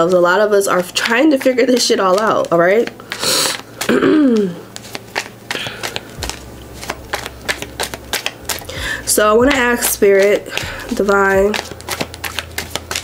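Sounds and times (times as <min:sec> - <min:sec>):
cards being shuffled: 0:00.0 - 0:13.0
person breathing: 0:03.0 - 0:04.7, 0:05.5 - 0:06.2, 0:08.7 - 0:09.1.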